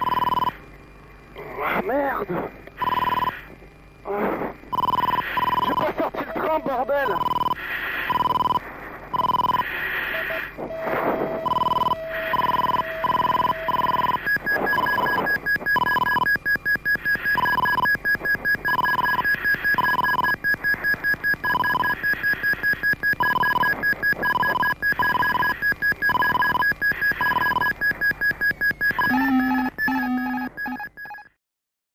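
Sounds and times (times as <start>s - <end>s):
repeated warning beep: 0.0s - 0.6s, 2.8s - 3.4s, 4.7s - 31.4s
high rapidly pulsing tone: 9.2s - 30.9s.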